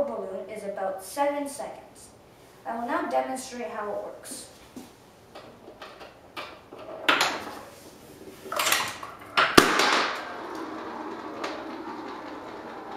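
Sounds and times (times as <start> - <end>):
balls rolling down wooden ramps: 5.4 - 12.9
steady rattling: 8.5 - 12.9.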